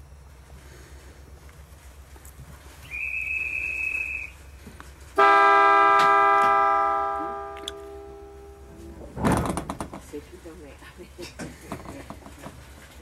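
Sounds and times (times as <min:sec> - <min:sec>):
high-pitched buzzer tone: 0:05.2 - 0:08.7
train horn: 0:05.2 - 0:08.7.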